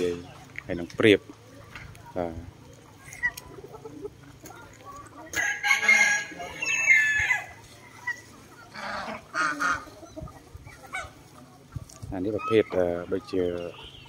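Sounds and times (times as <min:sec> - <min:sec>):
chicken calls: 0:00.0 - 0:14.0
rooster crowing: 0:05.4 - 0:07.5.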